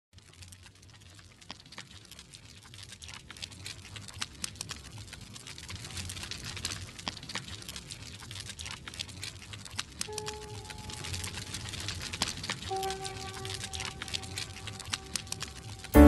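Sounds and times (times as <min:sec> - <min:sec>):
wood fire crackling: 0:00.2 - 0:16.0.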